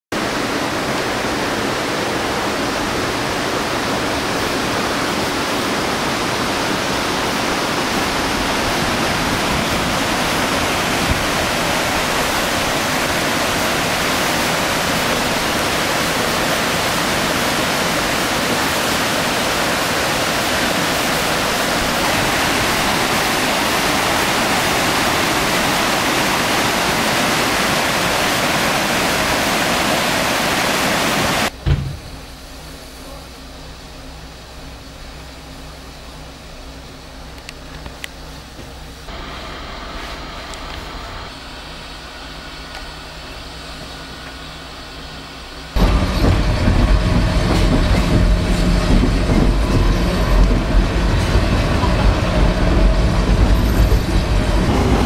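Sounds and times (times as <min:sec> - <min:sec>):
water rushing over rocks: 0:00.1 - 0:31.6.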